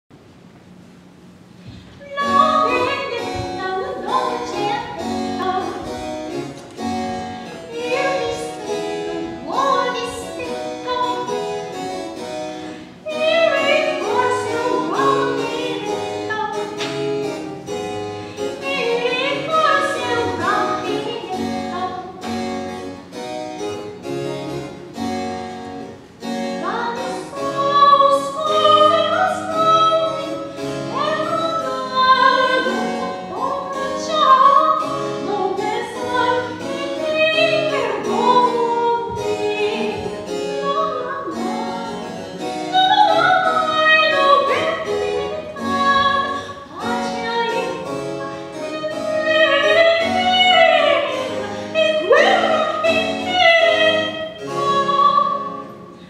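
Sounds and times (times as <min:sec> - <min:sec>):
soprano singing operatically: 0:02.0 - 0:06.0, 0:07.6 - 0:11.6, 0:13.0 - 0:16.8, 0:18.5 - 0:22.1, 0:26.6 - 0:55.7
harpsichord: 0:02.0 - 0:56.0.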